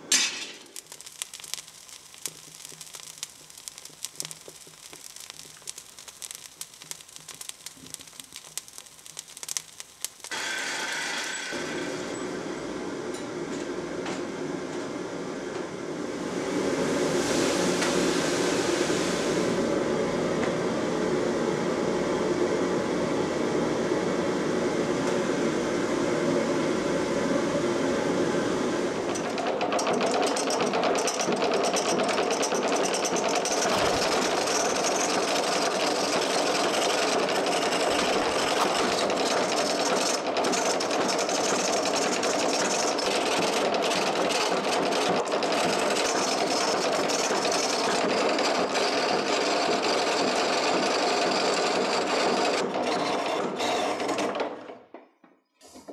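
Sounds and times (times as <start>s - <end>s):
lathe mechanical clatter: 29.1s - 54.4s
chisel scraping wood on lathe: 52.7s - 54.4s.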